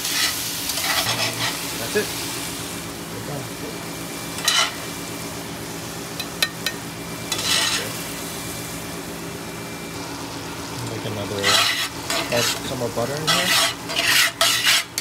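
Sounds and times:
shrimp sizzling in a pan: 0.0s - 15.0s
stirring in a pan: 6.4s - 8.0s, 11.3s - 15.0s.

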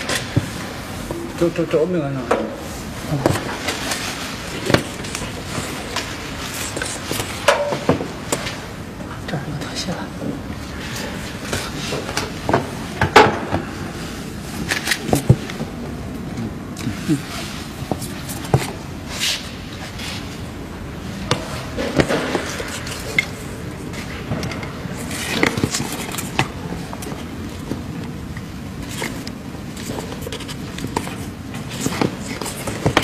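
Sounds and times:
steady background noise: 0.0s - 33.0s
handling clicks knocks and scrapes: 3.2s - 8.6s, 14.6s - 15.7s, 17.9s - 20.3s, 21.2s - 33.0s.

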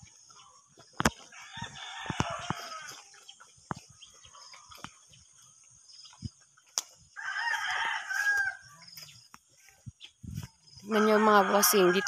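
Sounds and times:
rooster crowing: 1.3s - 3.0s, 7.2s - 8.9s, 10.8s - 12.0s.

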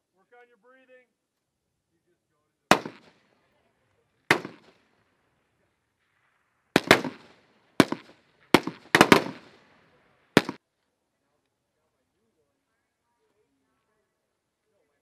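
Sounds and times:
rifle shots echoing: 2.7s - 3.3s, 4.3s - 5.3s, 5.9s - 10.6s.

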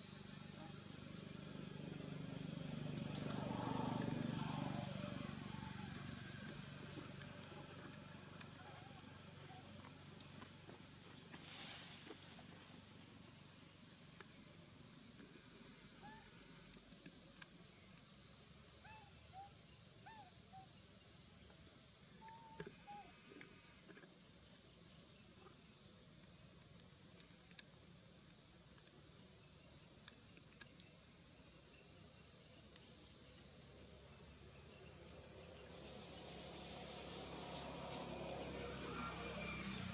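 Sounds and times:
high-pitched insect drone: 0.0s - 10.6s, 34.3s - 39.9s.

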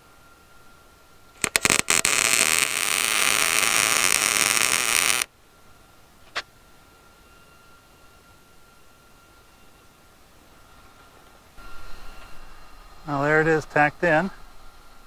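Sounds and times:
welding arc buzzing: 1.4s - 5.3s.

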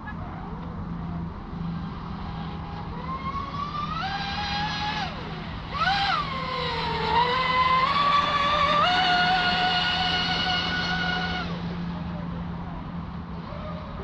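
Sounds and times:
steady low hum: 0.0s - 14.0s
electric motor whining: 1.2s - 14.0s.

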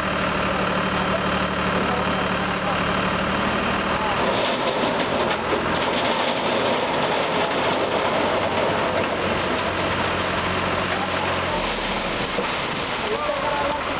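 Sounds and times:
tractor diesel engine running: 0.0s - 13.9s.

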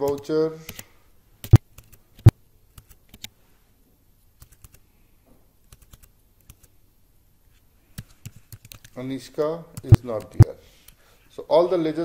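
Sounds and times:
computer keyboard keystrokes: 0.0s - 3.3s, 4.4s - 4.8s, 5.7s - 6.7s, 7.9s - 9.0s, 9.8s - 11.0s.

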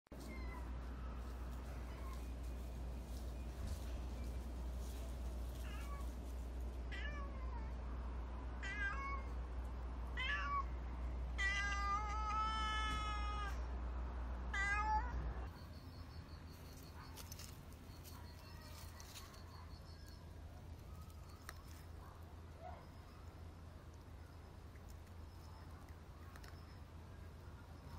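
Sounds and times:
cat meowing: 8.6s - 9.3s, 10.2s - 10.7s, 11.4s - 13.6s, 14.5s - 15.3s.

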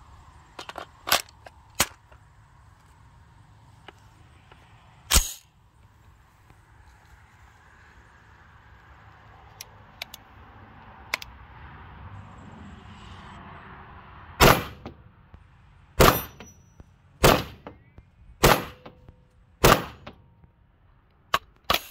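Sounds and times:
bullet pinging steel target: 5.1s - 5.5s, 14.4s - 15.0s, 16.0s - 20.2s
rifle shots: 14.4s - 14.9s, 16.0s - 16.5s, 17.2s - 17.8s, 18.4s - 19.0s, 19.6s - 20.2s.

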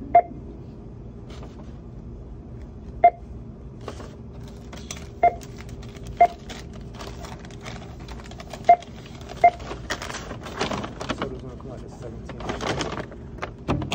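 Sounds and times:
paper bag rustling: 3.8s - 13.9s
barcode scanner beeping: 5.2s - 5.5s, 6.1s - 6.5s, 8.6s - 9.7s.

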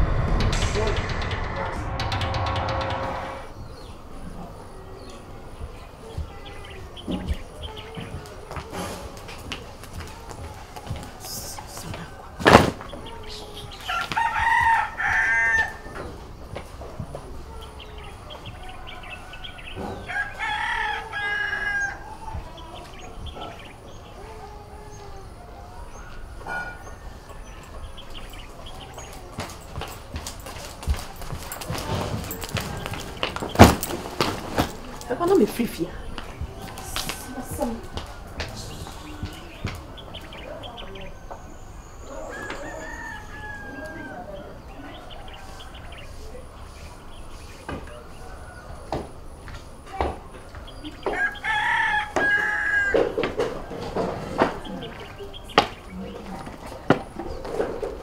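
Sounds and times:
small birds chirping: 3.6s - 30.2s, 31.1s - 52.9s, 54.4s - 58.0s
rooster crowing: 13.8s - 16.2s, 18.6s - 22.4s, 36.2s - 39.5s, 42.0s - 46.3s, 51.0s - 53.6s.

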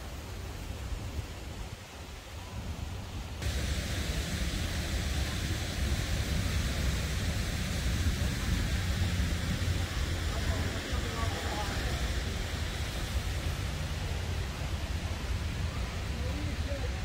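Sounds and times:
wind buffeting microphone: 0.7s - 17.0s
outdoor rushing noise: 3.4s - 17.0s.

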